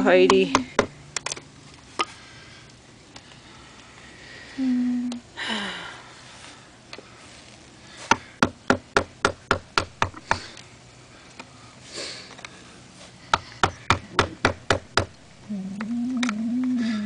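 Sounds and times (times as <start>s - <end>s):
hammer striking wooden log: 8.1s - 10.4s, 13.3s - 15.1s
low wavering whine: 15.2s - 17.0s.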